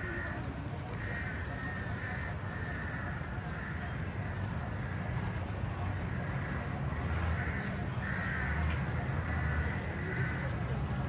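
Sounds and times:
birds harsh calls: 6.0 - 8.6.

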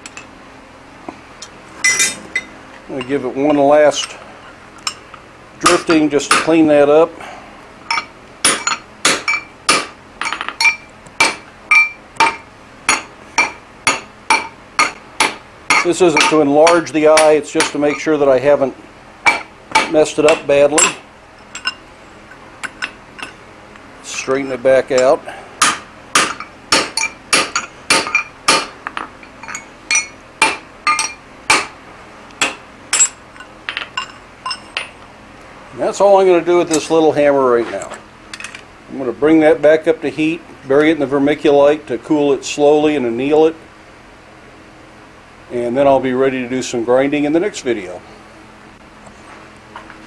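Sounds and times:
hammer striking steel on anvil: 5.6 - 6.6, 7.9 - 18.1, 19.3 - 21.0, 25.0 - 31.7.

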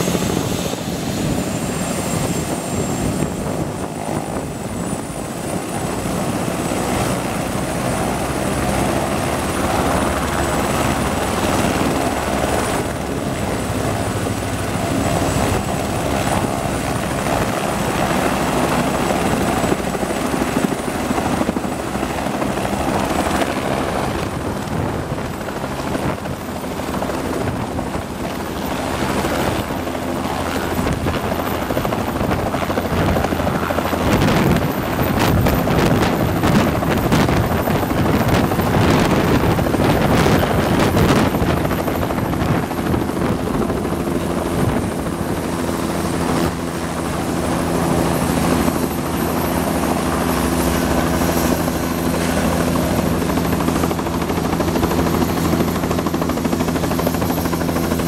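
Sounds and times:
helicopter turbine and rotor noise: 0.0 - 58.0.

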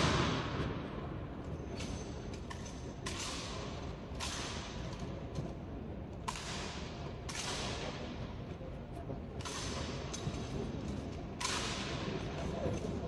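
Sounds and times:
sharp slaps echoing in a hall: 0.0 - 13.0.

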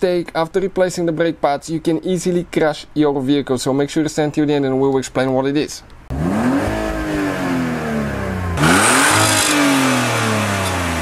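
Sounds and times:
car engine revving: 6.1 - 11.0.

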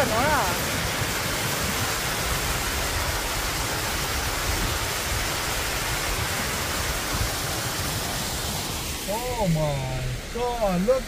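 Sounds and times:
waterfall rushing over rock: 0.0 - 11.0.

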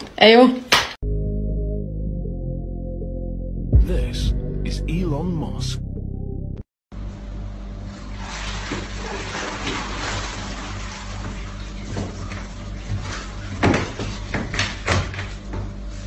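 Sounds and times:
water sloshing in a plastic tub: 8.1 - 15.1.

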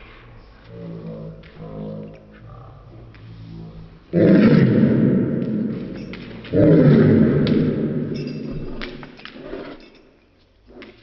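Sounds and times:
slowed dog bark deep roar: 4.1 - 8.5.

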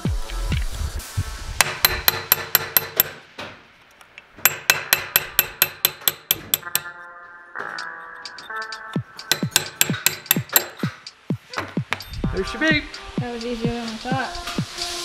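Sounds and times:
hammer tapping metal punch: 1.6 - 3.2, 4.4 - 6.9, 9.2 - 11.1.

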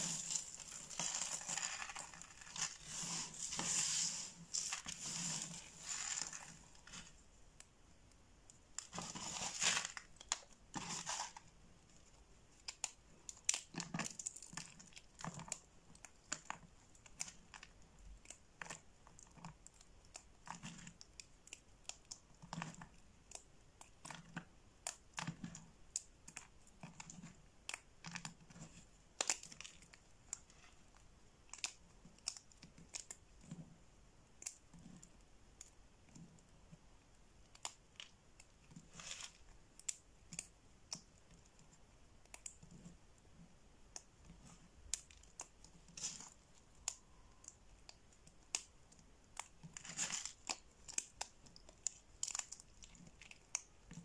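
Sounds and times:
soap pieces crunching and snapping: 0.0 - 7.7, 12.6 - 33.6, 37.4 - 41.6, 43.9 - 54.0.

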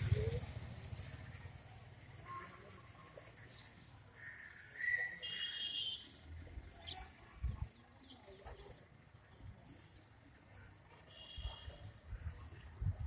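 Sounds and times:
high whistled bird calls: 4.6 - 5.8.

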